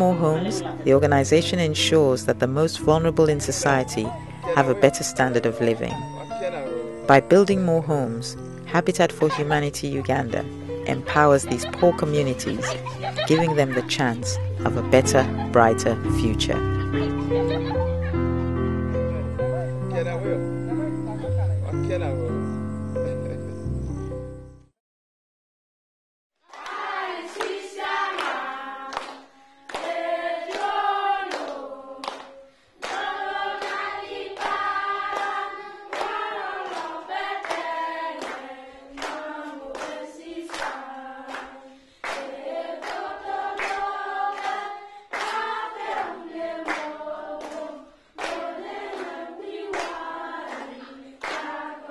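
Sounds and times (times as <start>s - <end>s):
choir singing: 0.0s - 22.2s, 26.5s - 51.9s
hand claps keeping time: 26.5s - 47.6s, 48.2s - 51.7s.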